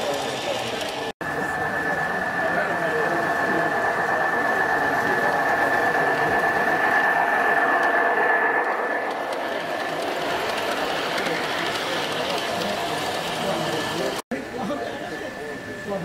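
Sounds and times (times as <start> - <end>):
wheels on rails: 0.0 - 14.2
model train electric motor whine: 8.7 - 14.2.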